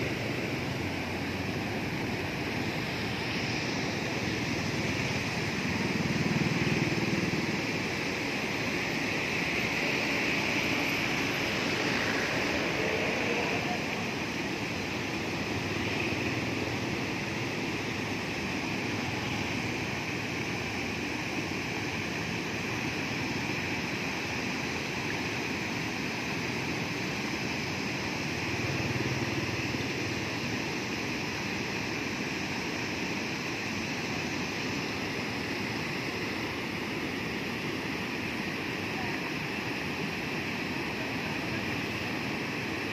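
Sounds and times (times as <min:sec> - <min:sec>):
water rushing over weir: 0:00.0 - 0:42.9.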